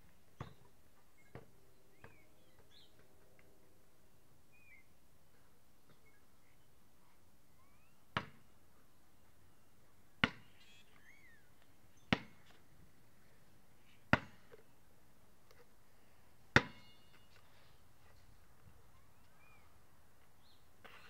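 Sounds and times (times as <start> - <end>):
basketball bouncing on concrete: 8.2 - 8.4, 10.2 - 10.4, 12.1 - 12.6, 14.1 - 14.6, 16.6 - 16.9.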